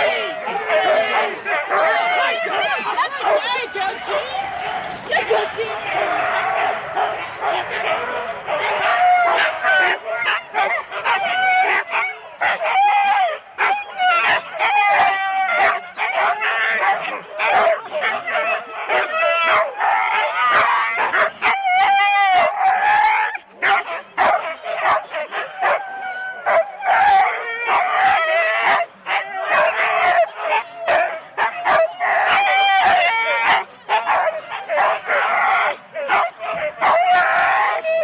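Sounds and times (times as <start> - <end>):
dogs barking sharply: 0.0 - 12.8, 35.6 - 37.8
sled dogs yelping and howling: 0.0 - 38.0.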